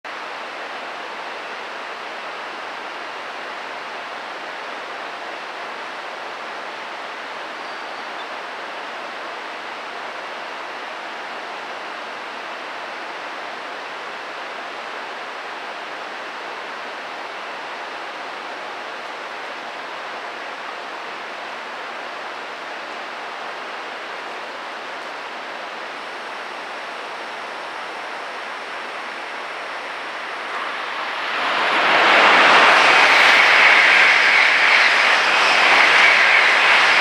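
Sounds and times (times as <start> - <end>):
steady background hiss: 0.1 - 37.0.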